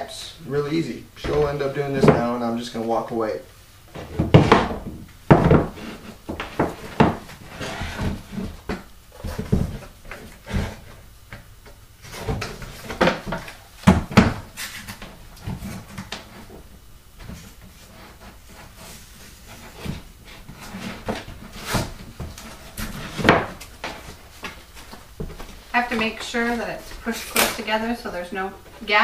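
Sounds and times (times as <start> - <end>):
knocks on wooden workbench: 4.0 - 7.3.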